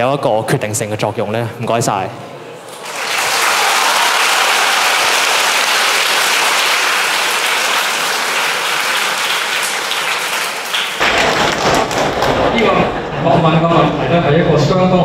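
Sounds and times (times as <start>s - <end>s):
audience applauding: 2.7s - 13.1s.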